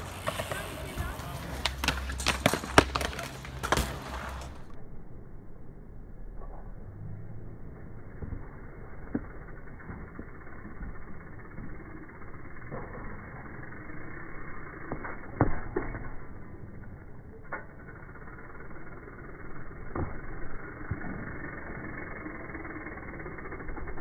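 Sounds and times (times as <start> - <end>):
bike tyres rolling on concrete: 0.0 - 4.8, 6.4 - 24.0
bike landing thump: 0.1 - 4.7.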